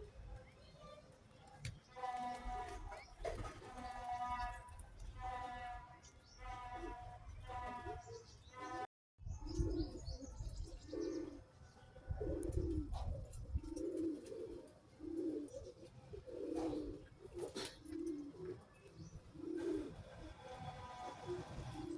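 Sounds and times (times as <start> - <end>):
pigeons cooing: 9.4 - 21.9.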